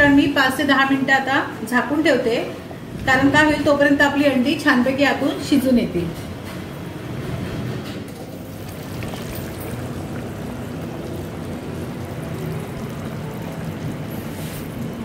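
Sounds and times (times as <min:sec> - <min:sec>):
thick curry bubbling in a pot: 0:08.3 - 0:15.0.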